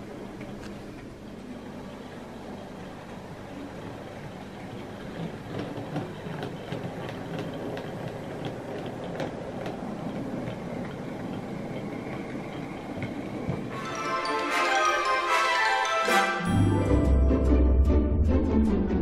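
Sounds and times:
wagon wheels clicking on track: 2.8 - 15.2.

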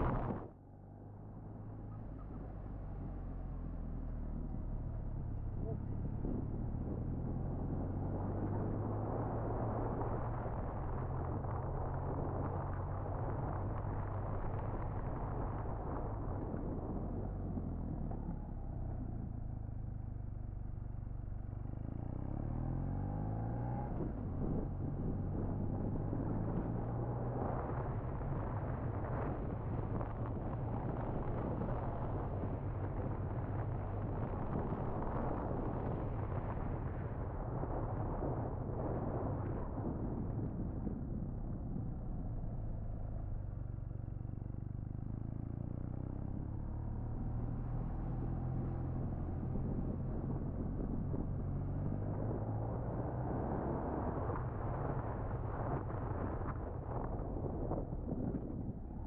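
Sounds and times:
wind and road noise: 0.0 - 59.0.

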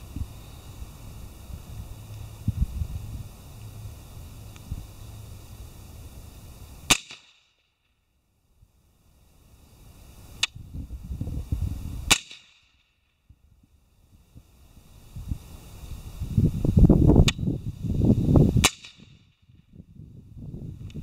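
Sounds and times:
suppressed rifle shots: 6.9 - 7.4, 12.1 - 12.6.

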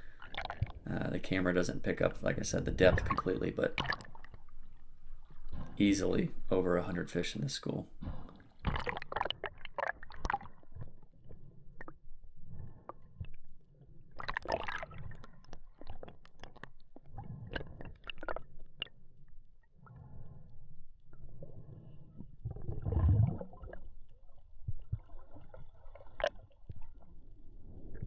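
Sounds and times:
water sloshing and gurgling: 0.0 - 28.0.

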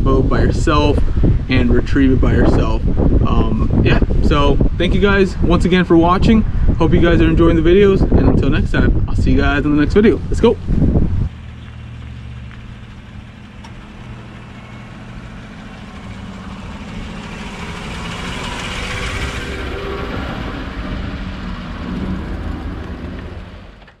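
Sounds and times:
trailer wheels rolling: 10.0 - 24.0
pickup truck driving over: 10.2 - 24.0.

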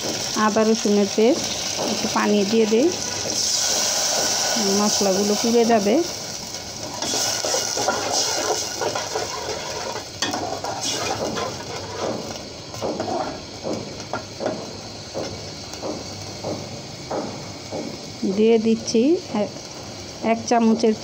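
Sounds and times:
spice paste sizzling in oil: 0.0 - 21.0
spatula scraping a metal pot: 6.9 - 12.3.

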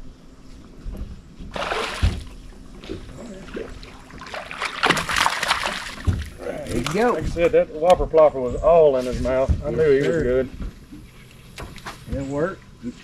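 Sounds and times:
fish splashing at water surface: 1.5 - 7.1.

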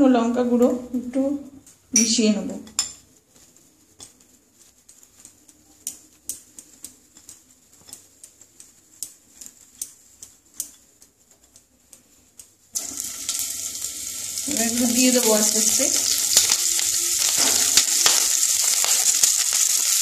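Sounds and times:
food sizzling in hot oil: 12.7 - 20.0.

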